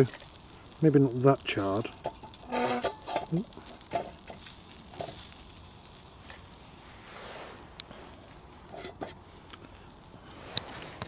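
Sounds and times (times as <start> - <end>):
faint rustling: 6.0 - 11.0.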